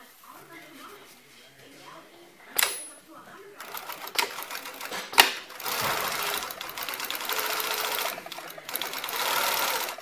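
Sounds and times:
sewing machine stitching: 3.6s - 10.0s.

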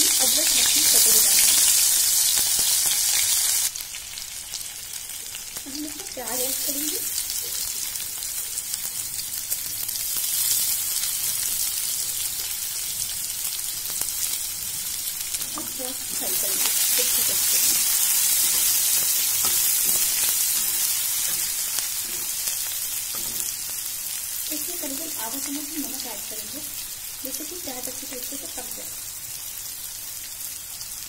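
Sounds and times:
onions sizzling in hot fat: 0.0s - 31.0s
steel spatula stirring: 15.4s - 23.7s.

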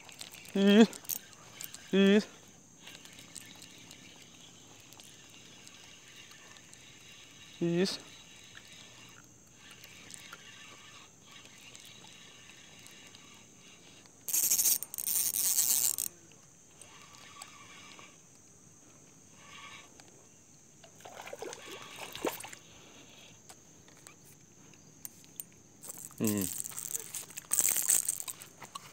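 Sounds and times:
reel rattling and clicking: 0.0s - 2.0s, 2.8s - 18.2s, 25.0s - 28.9s
fishing line hiss: 0.0s - 16.2s, 21.0s - 23.4s, 25.0s - 28.9s.

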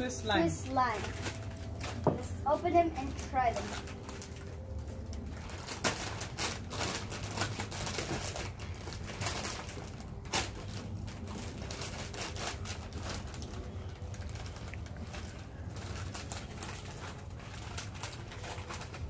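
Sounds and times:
chip bag crinkling: 0.0s - 19.0s.

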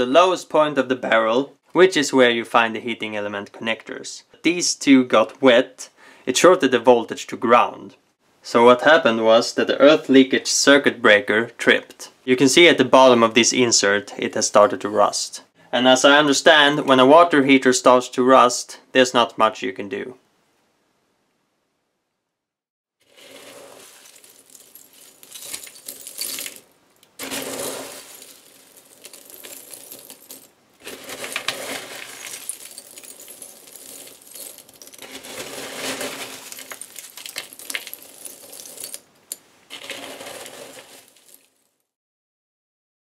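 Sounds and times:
hand rummaging through scale flakes: 23.1s - 39.0s, 39.7s - 41.6s.

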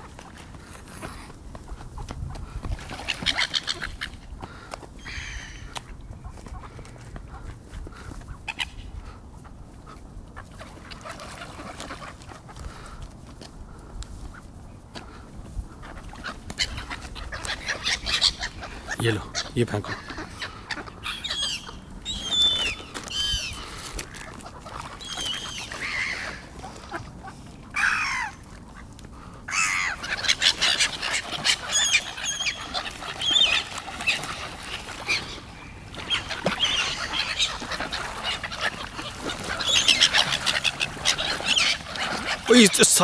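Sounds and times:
gulls screeching: 5.0s - 5.7s, 15.8s - 28.5s, 29.4s - 43.0s.

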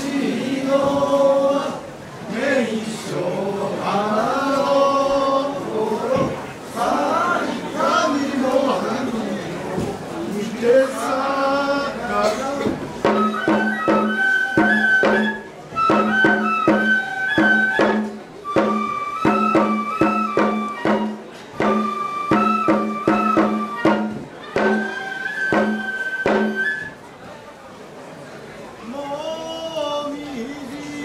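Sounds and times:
percussive strikes: 12.3s - 26.8s
high wind instrument melody: 13.0s - 27.1s.

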